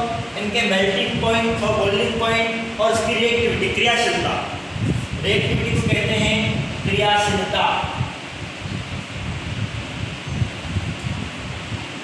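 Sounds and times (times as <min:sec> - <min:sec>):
wind hissing on microphone: 0:00.0 - 0:12.0.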